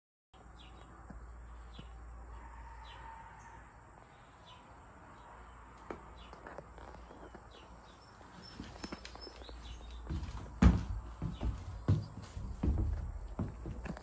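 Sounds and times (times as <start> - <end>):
bird chirping: 0.4 - 14.0
faint outdoor ambience: 0.4 - 14.0.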